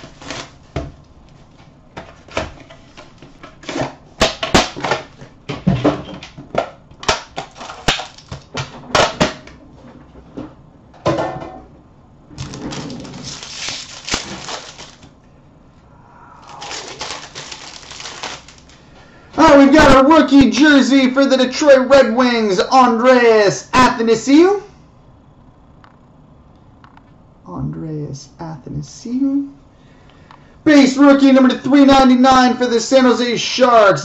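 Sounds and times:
plastic wrapping crinkling: 0.0 - 0.7, 12.4 - 15.2, 16.4 - 18.9.

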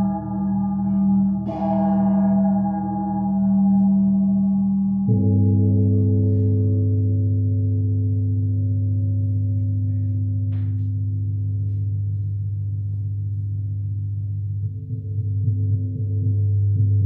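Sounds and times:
gongs ringing: 0.0 - 7.4
deep steady hum: 0.0 - 17.0.

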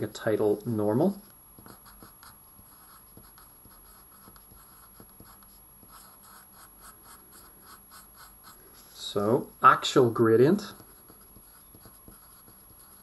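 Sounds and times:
pencil writing on paper: 1.2 - 8.7, 10.6 - 13.0.

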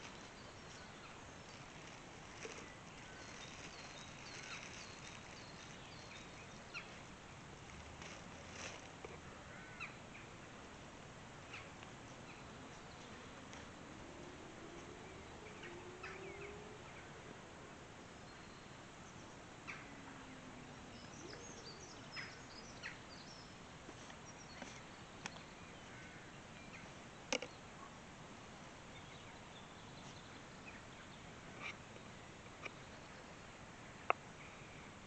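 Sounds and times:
faint bird chirps: 0.0 - 7.0.

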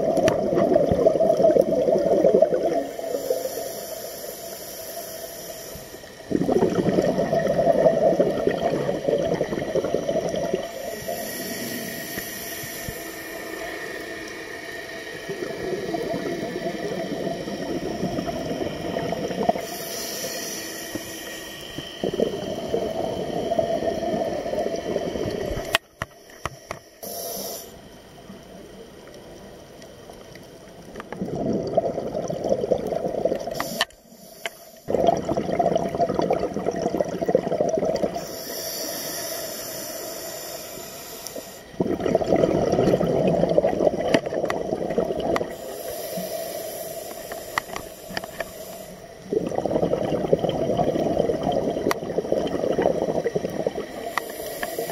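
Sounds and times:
exhaled bubbles underwater: 0.0 - 4.3, 6.0 - 26.0, 27.9 - 33.8, 34.9 - 39.0, 41.4 - 54.9
regulator inhalation hiss: 2.6 - 6.4, 9.8 - 28.0, 33.5 - 34.9, 38.0 - 41.8, 45.4 - 49.3, 53.8 - 54.9.

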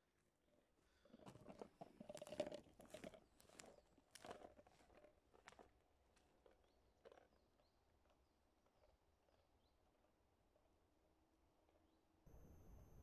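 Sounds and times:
footsteps through grass and pine needles: 2.2 - 6.4.

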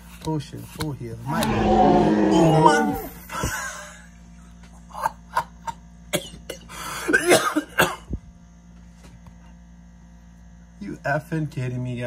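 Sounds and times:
faint electrical hum: 0.0 - 12.0
man coughing: 5.6 - 8.2.

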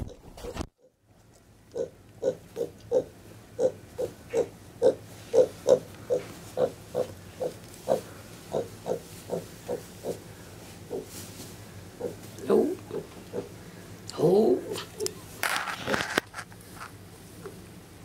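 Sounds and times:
pig grunting: 1.8 - 10.2, 10.9 - 11.2, 12.0 - 13.6.

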